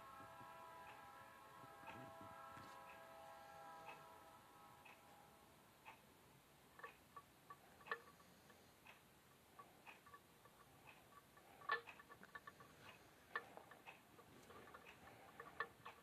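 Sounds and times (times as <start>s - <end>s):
faint sharp clicks and ticks: 5.8s - 16.0s.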